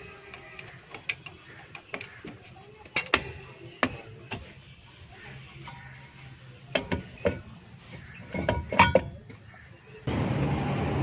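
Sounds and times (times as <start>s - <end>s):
metal brake drum clinking: 0.5s - 4.5s, 5.6s - 9.4s.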